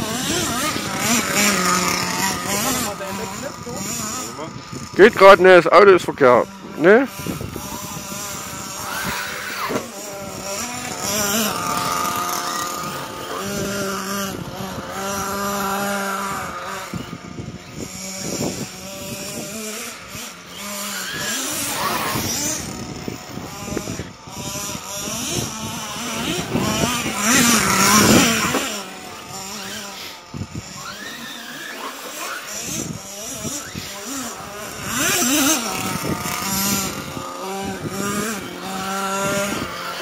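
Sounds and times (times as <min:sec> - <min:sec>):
model car motor whine: 0:00.0 - 0:40.0.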